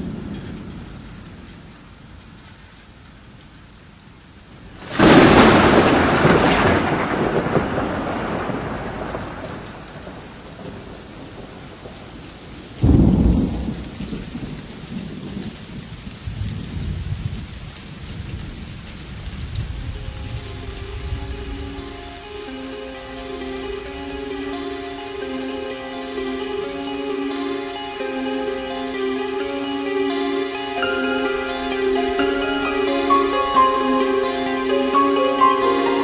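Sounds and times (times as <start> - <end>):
steady rain: 0.0 - 36.0
thunderclap rumbling: 4.8 - 29.6.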